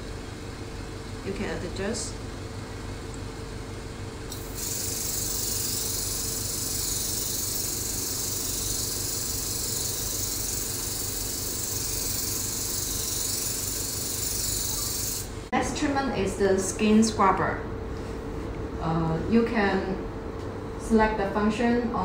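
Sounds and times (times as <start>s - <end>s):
spray mist gun hissing: 4.3s - 15.4s.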